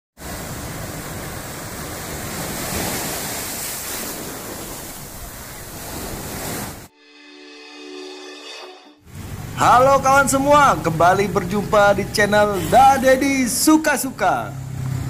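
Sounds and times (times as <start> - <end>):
surf washing over rocks: 0.2 - 6.9.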